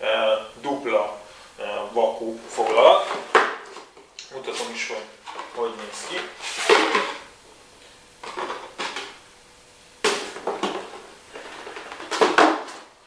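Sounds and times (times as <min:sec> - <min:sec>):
cardboard packaging rustling: 0:10.1 - 0:13.0.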